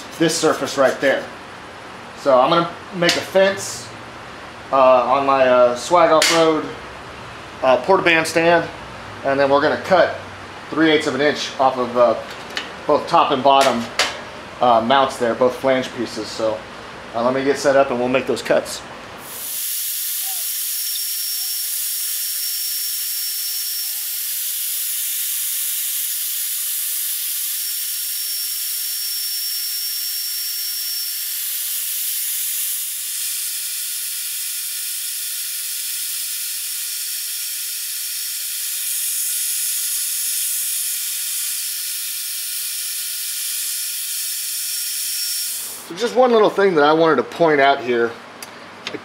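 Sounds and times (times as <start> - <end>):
band saw cutting metal: 0.0 - 1.3, 19.3 - 46.0.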